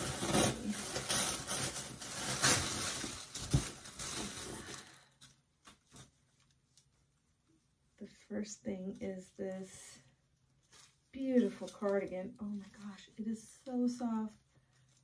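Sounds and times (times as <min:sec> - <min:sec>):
packaging crinkling: 0:00.0 - 0:06.9.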